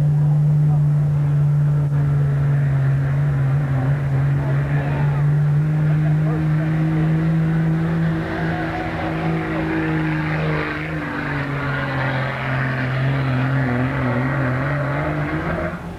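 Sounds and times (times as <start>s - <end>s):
diesel truck engine running hard: 0.0s - 15.9s.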